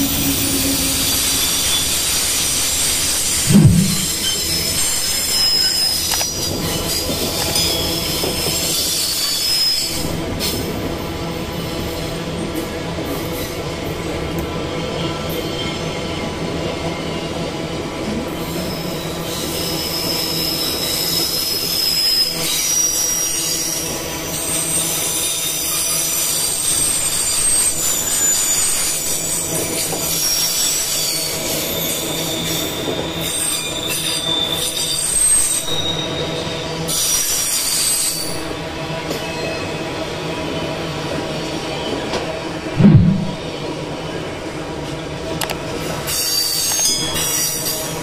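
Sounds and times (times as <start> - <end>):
train wheel squeals: 0.0 - 3.4, 4.0 - 10.7, 15.0 - 42.3, 45.8 - 48.0
freight train rumbling past: 0.0 - 5.0.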